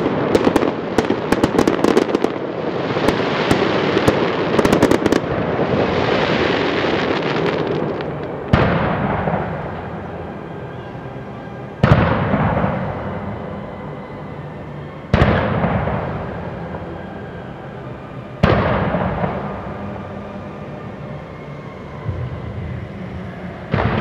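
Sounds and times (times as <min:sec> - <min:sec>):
firework bangs: 0:00.0 - 0:10.2, 0:11.8 - 0:13.6, 0:15.1 - 0:16.9, 0:18.4 - 0:20.0, 0:23.7 - 0:24.0
fireworks crackling: 0:00.0 - 0:10.8, 0:11.8 - 0:14.0, 0:15.1 - 0:17.8, 0:18.4 - 0:21.0, 0:21.8 - 0:24.0.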